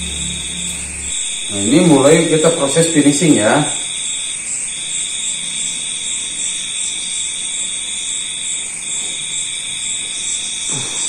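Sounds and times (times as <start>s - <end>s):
faint rapid pulsing: 0.0s - 4.0s
steady high-pitched tone: 0.0s - 7.3s.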